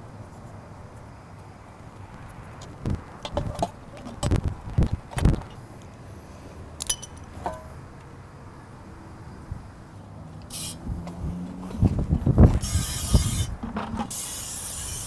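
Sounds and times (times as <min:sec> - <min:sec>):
metal parts knocking and clinking: 0:06.8 - 0:07.7
short hiss: 0:10.5 - 0:10.8.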